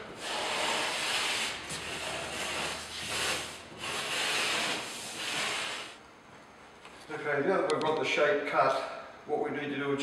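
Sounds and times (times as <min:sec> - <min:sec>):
plasterboard scraping strokes: 0:00.0 - 0:06.0.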